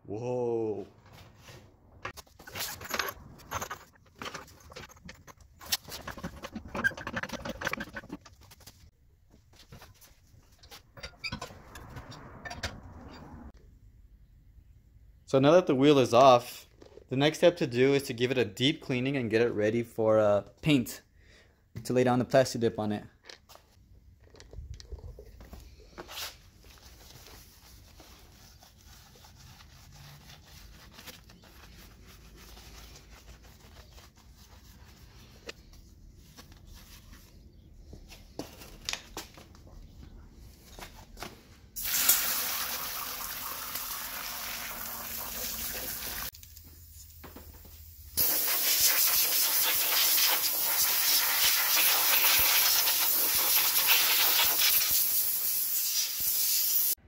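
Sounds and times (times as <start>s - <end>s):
liquid spraying with a hiss: 48.2s - 57.0s.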